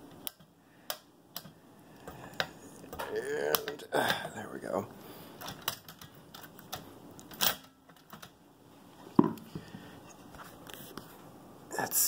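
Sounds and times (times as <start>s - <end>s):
typewriter parts clicking and knocking: 5.4s - 8.3s.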